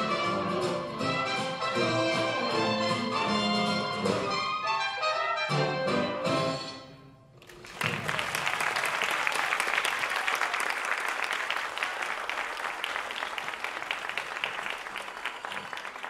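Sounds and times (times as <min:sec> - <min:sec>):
audience applause: 0:07.4 - 0:16.0.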